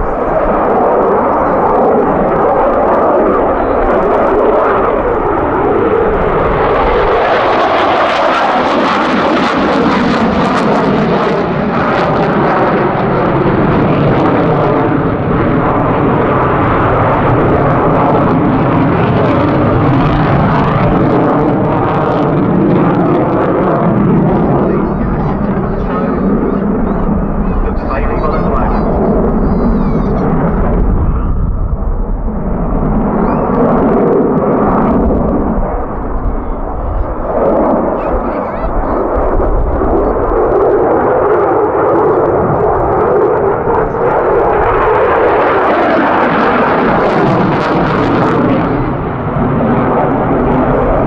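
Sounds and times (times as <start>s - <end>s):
fighter jet roaring: 0.0s - 51.0s.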